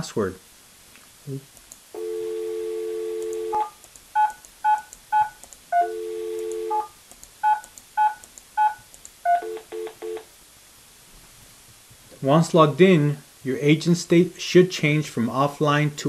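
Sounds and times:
dial tone: 0:02.0 - 0:03.6, 0:05.8 - 0:06.8.

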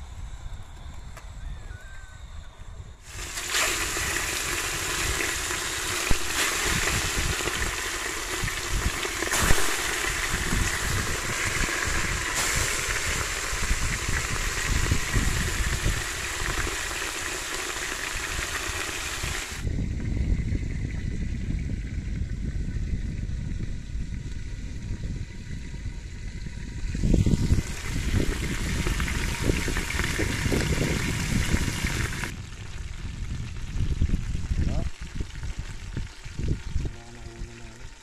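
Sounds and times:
fish sizzling in hot oil: 0:03.1 - 0:19.7, 0:24.1 - 0:36.9
oil popping: 0:03.1 - 0:19.7, 0:26.4 - 0:38.0.

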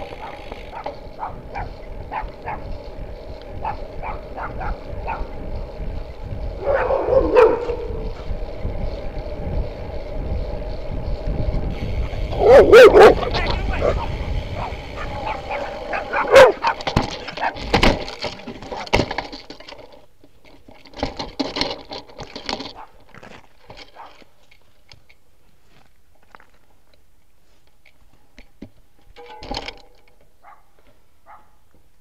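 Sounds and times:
bicycle clattering to the ground: 0:00.0 - 0:09.1, 0:11.6 - 0:26.7, 0:28.4 - 0:31.0
dog barking: 0:00.2 - 0:02.6, 0:03.6 - 0:05.3, 0:06.6 - 0:07.9, 0:12.4 - 0:16.8, 0:30.4 - 0:31.6.

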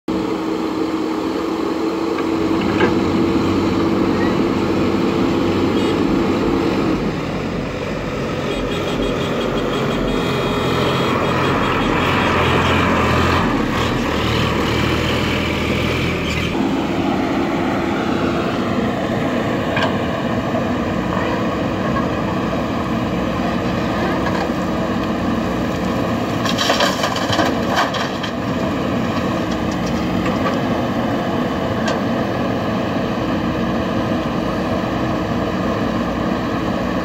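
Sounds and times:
backhoe diesel engine running: 0:00.1 - 0:37.0.

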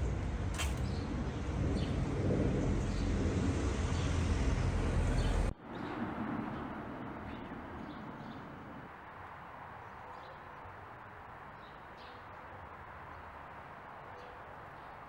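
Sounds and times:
heavy low rumble: 0:00.0 - 0:08.1
outdoor street ambience: 0:00.0 - 0:15.0.

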